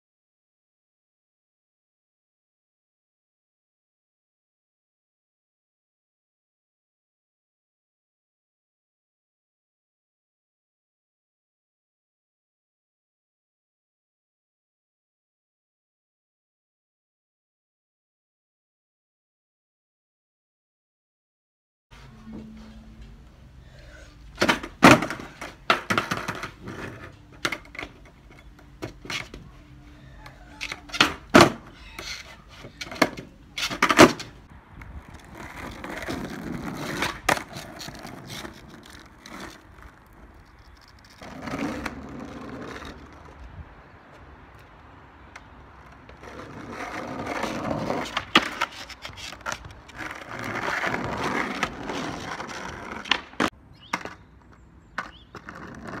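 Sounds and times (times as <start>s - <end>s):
skateboard wheels rumbling on asphalt: 22.0s - 56.0s
skateboard deck pops and clacks: 24.4s - 28.1s, 30.6s - 34.4s, 45.4s - 54.2s, 54.9s - 56.0s
skateboard slapping onto paving: 24.4s - 28.1s, 30.6s - 43.3s, 45.4s - 54.2s.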